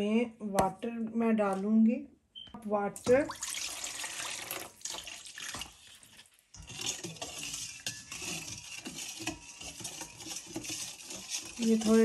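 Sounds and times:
water pouring into metal bowl: 3.0 - 12.0
spoon stirring in metal bowl: 4.1 - 12.0.

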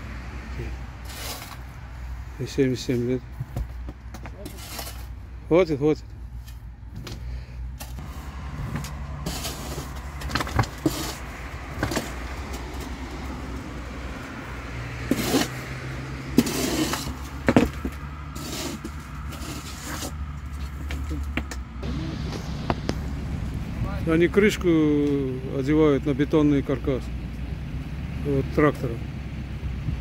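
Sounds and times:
shovel digging into soil: 1.0 - 1.7, 4.4 - 5.2, 7.8 - 12.1, 15.1 - 15.6, 16.4 - 17.2, 18.4 - 20.2
low engine hum: 6.0 - 30.0.

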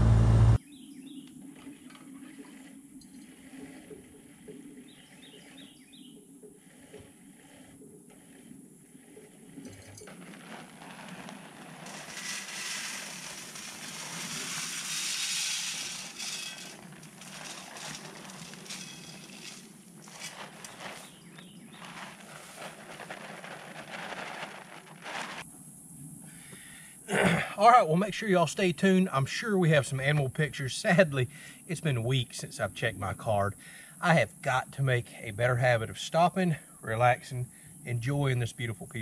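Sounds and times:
small clicks and rattles: 9.2 - 21.0
bag crinkling: 10.0 - 25.4
feed pouring from plastic bag: 10.1 - 25.4.

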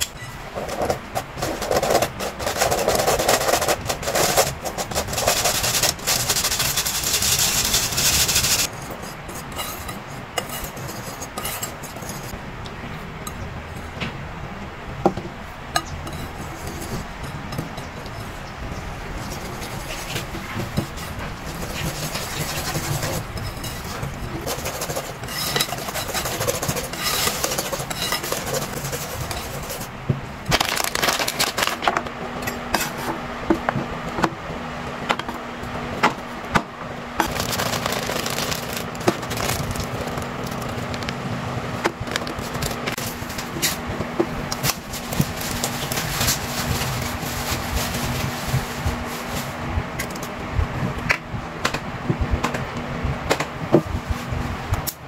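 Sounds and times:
whisk stirring flour in bowl: 0.0 - 12.4, 15.8 - 29.9, 37.2 - 41.2, 41.9 - 49.3
steady low hum: 0.0 - 55.0.

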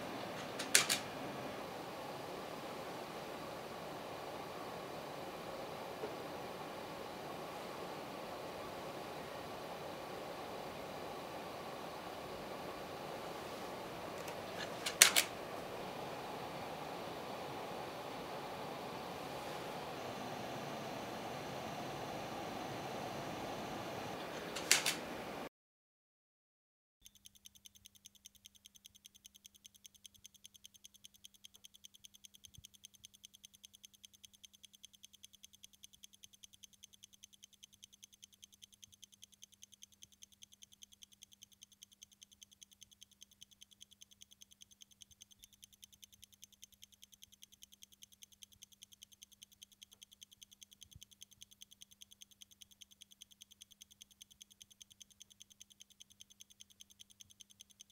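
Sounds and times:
faint steady hum: 0.0 - 25.5
clock-like ticking: 27.0 - 57.9.

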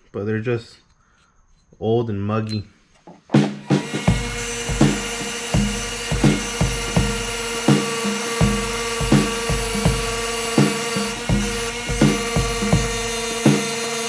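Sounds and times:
background music with beat: 3.4 - 14.0.

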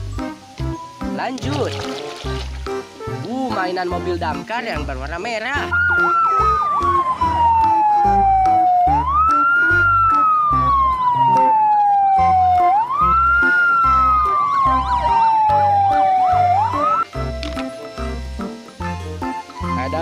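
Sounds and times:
fire engine siren wailing: 5.6 - 17.5
warbling siren: 5.7 - 17.1.

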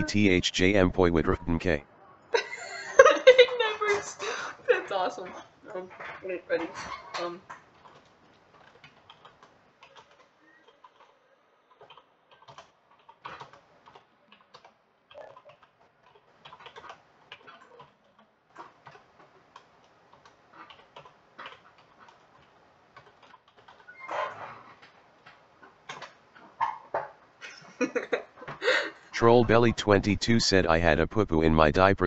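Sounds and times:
computer keyboard typing: 7.8 - 23.9.

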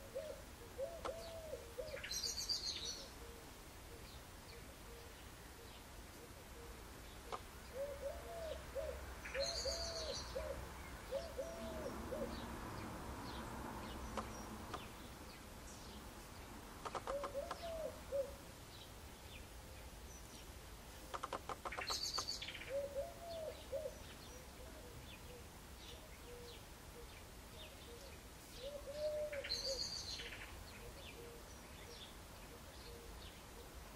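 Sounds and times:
dove cooing: 0.0 - 12.5, 16.9 - 18.5, 21.0 - 33.8
songbirds chirping: 0.0 - 33.9
bird rattling calls: 16.8 - 17.8, 21.1 - 22.4.

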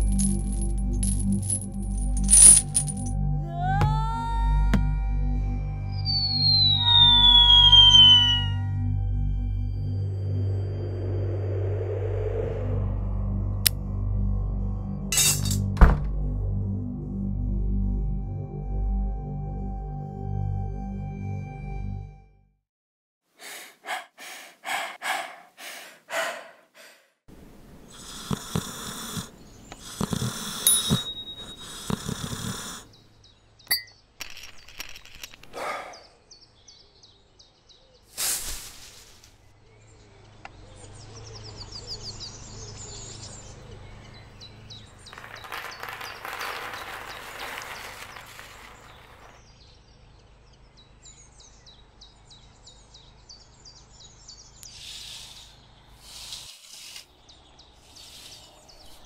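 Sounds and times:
birds chirping: 5.7 - 8.8, 27.7 - 38.1, 39.4 - 59.0
short breathy sounds: 23.4 - 27.2, 54.7 - 56.6
snoring: 27.9 - 33.0.

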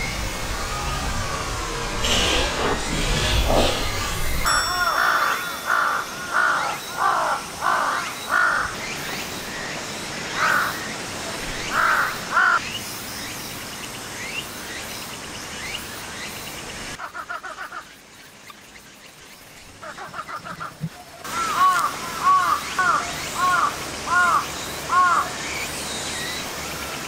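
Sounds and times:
crow cawing: 4.8 - 8.8, 10.4 - 10.8, 11.6 - 12.6, 21.3 - 25.3.

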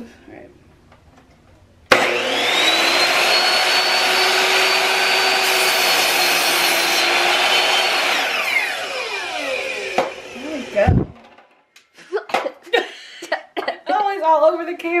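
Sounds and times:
saw blade cutting wood: 1.9 - 11.0
miter saw motor whine: 2.0 - 10.9.

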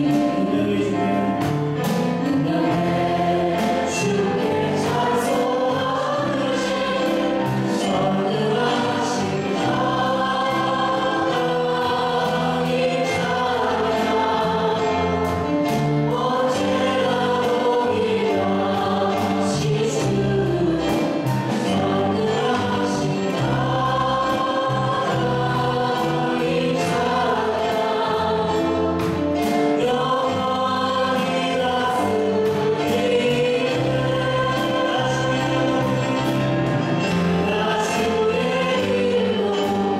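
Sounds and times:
music accompaniment with low notes: 0.0 - 39.9
people singing into microphones: 0.0 - 39.9.

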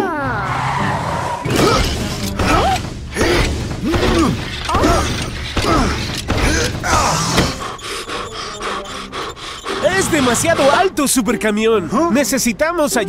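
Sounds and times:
cartoon mechanical creaks: 1.4 - 11.0.

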